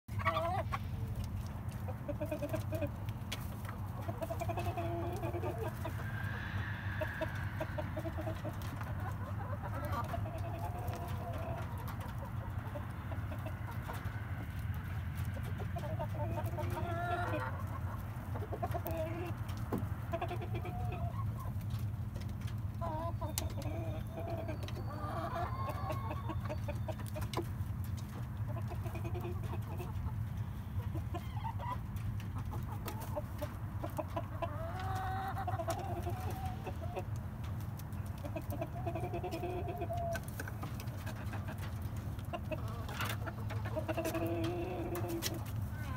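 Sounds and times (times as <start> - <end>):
steady low hum: 0.1 - 16.8
chickens clucking: 0.1 - 45.9.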